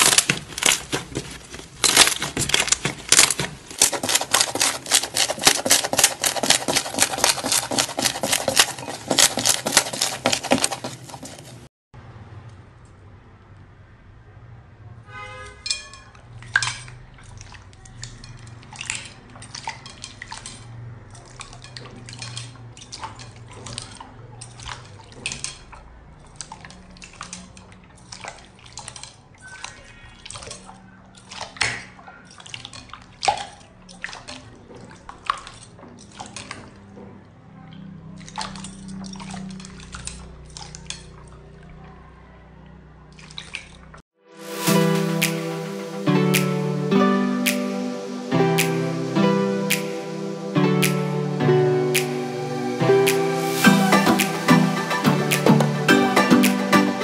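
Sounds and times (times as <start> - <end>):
hands squishing slime in water: 0.0 - 11.7, 15.3 - 42.0, 43.0 - 44.7
wet squelches and splashes: 0.0 - 11.7, 15.4 - 46.9.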